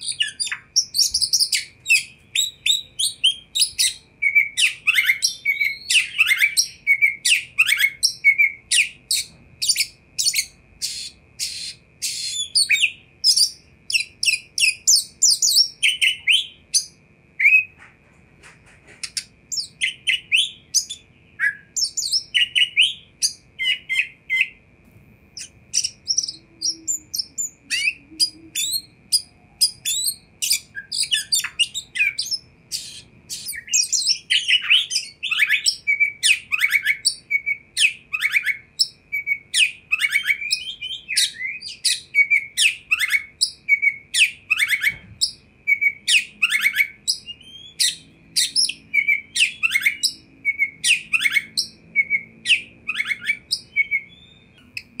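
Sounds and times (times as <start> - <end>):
bird singing whistles and chirps: 0.0 - 17.8, 19.0 - 24.6, 25.4 - 55.0
faint steady high tone: 19.6 - 47.8.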